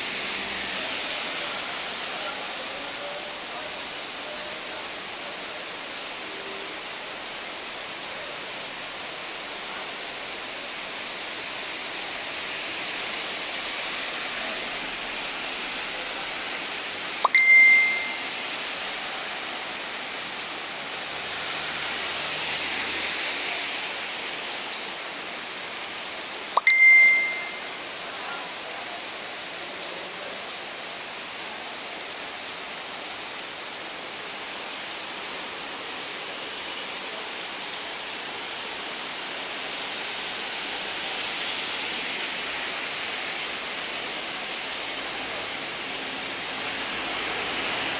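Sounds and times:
steady rain falling: 0:00.0 - 0:47.9
sharp click with high ding: 0:17.2 - 0:18.2, 0:26.6 - 0:27.6.

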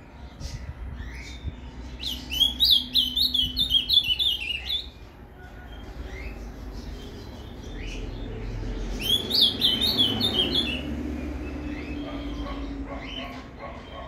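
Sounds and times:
bird singing whistled notes: 0:01.0 - 0:05.0, 0:09.0 - 0:12.4.

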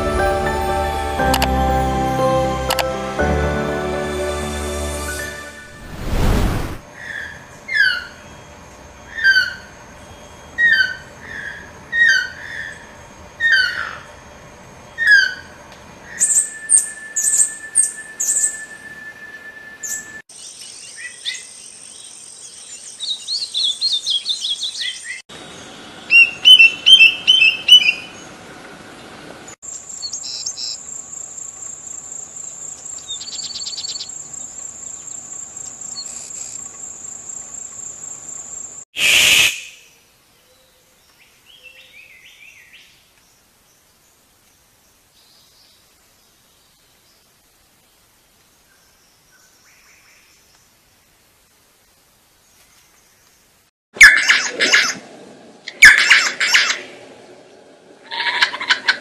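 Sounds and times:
short loud rush: 0:05.0 - 0:06.8
birds chirping and trilling: 0:07.0 - 0:14.2, 0:14.8 - 0:28.4, 0:32.2 - 0:36.5.

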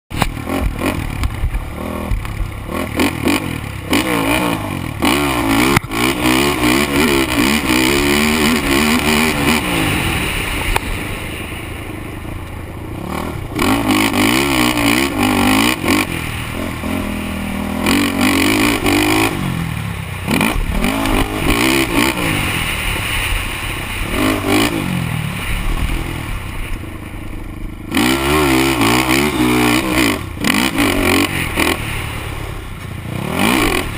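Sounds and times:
quad engine revving: 0:00.1 - 0:26.6, 0:27.5 - 0:33.9.

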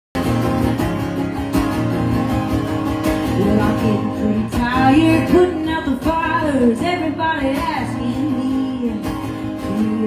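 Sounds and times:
acoustic guitar strumming: 0:00.2 - 0:10.0
woman singing: 0:03.2 - 0:10.0.

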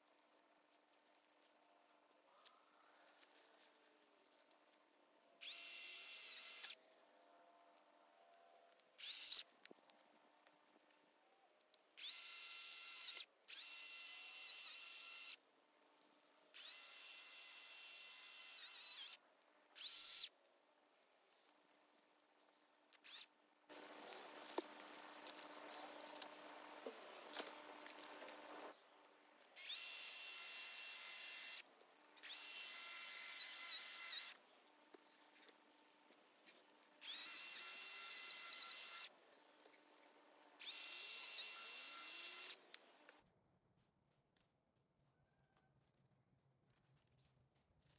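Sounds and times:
electric chainsaw whining: 0:12.0 - 0:15.4, 0:16.6 - 0:19.2, 0:23.1 - 0:28.8, 0:29.6 - 0:31.6, 0:32.2 - 0:34.4, 0:37.0 - 0:39.1, 0:40.6 - 0:42.7.

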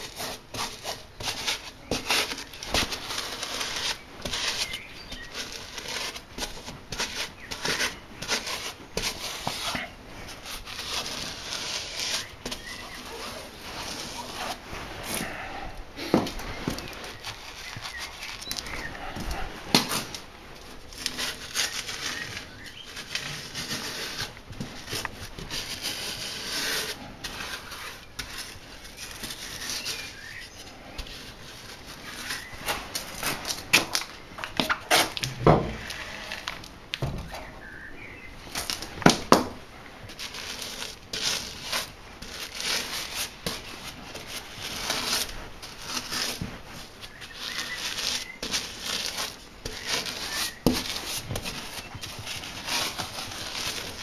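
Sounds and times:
rubber tire rubbing on rim: 0:00.0 - 0:20.2, 0:40.1 - 0:54.0.

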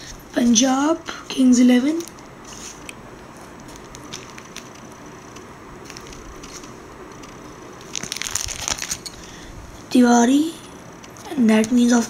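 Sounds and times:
cards and plastic ticking: 0:01.8 - 0:09.3, 0:11.0 - 0:12.0
plastic sleeve page crinkling: 0:01.8 - 0:09.4.

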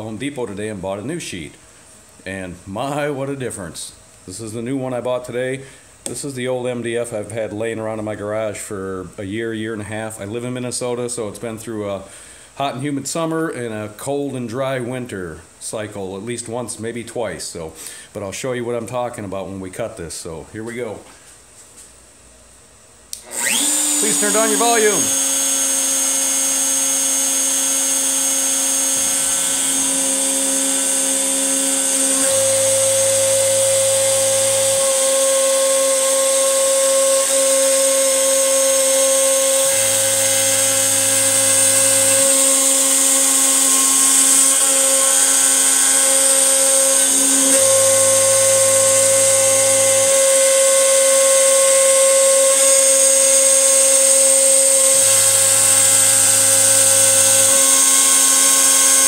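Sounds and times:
router spindle high whine: 0:23.2 - 0:59.0.

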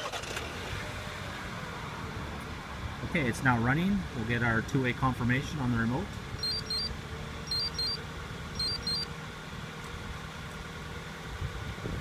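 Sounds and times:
remote fob high beeps: 0:06.4 - 0:08.0, 0:08.6 - 0:09.1.

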